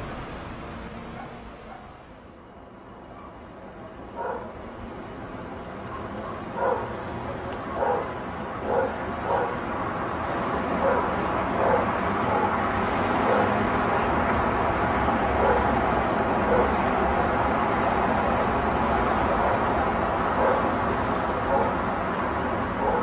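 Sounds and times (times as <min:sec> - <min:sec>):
city traffic rumble: 0:00.0 - 0:23.0
dogs barking: 0:01.2 - 0:02.0, 0:03.0 - 0:04.8, 0:05.4 - 0:09.8, 0:10.6 - 0:13.7, 0:15.4 - 0:15.8, 0:16.4 - 0:16.9, 0:19.3 - 0:23.0.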